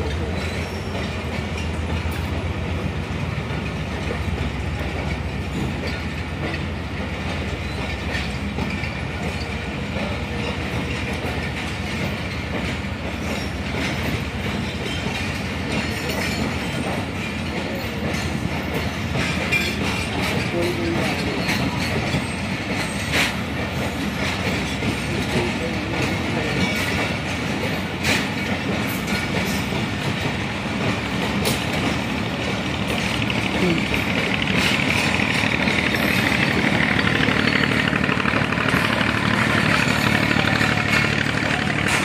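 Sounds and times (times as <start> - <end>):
train rumbling past: 0.0 - 42.0
wheels clacking over rail joints: 0.0 - 42.0.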